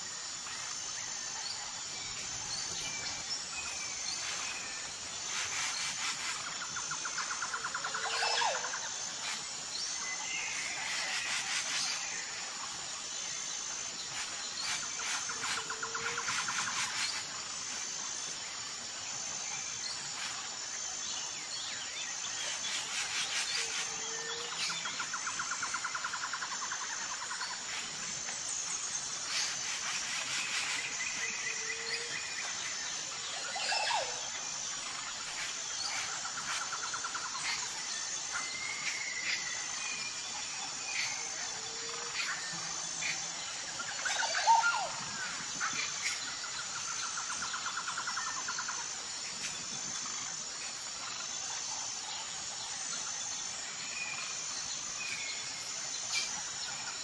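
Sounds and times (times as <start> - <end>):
birds calling and trilling: 0.0 - 57.0
insect chirping: 0.0 - 57.0.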